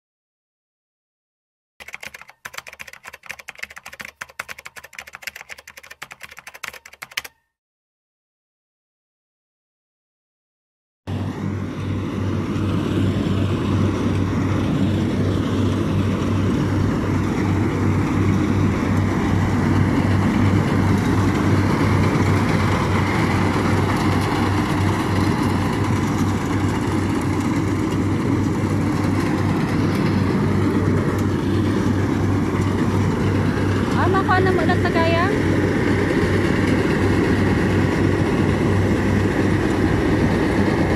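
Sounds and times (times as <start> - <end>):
combine harvester engine drone: 11.1 - 40.9.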